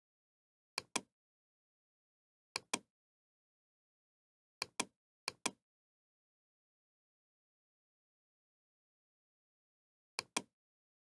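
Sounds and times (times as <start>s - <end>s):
computer mouse clicking: 10.2s - 10.5s.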